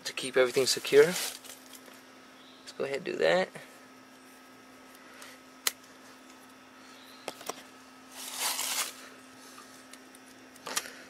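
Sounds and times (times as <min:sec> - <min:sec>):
tape ripping off roll: 0:08.2 - 0:09.0.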